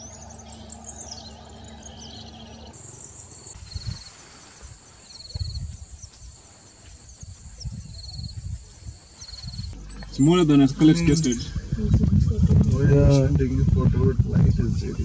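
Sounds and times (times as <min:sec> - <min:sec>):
wind rumbling on microphone: 0:03.6 - 0:15.0.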